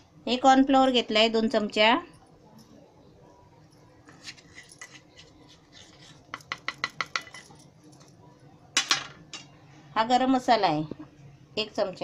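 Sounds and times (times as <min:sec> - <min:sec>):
steel kitchenware taps and clinks: 0:06.3 - 0:07.6.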